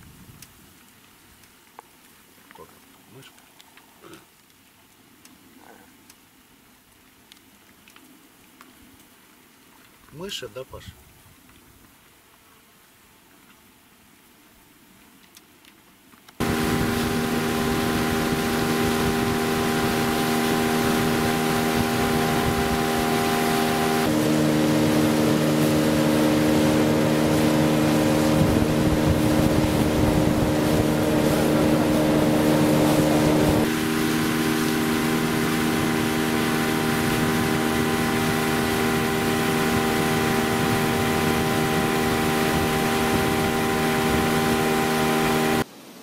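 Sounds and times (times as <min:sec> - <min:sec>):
outboard motor running: 0:16.4 - 0:45.6.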